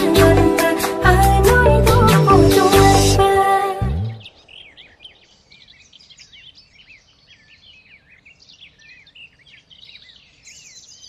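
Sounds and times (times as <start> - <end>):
small birds chirping: 3.9 - 11.0.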